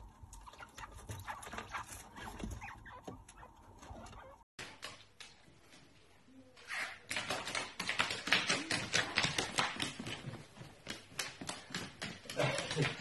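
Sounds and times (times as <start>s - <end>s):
chinchillas squeaking: 0.4s - 4.4s.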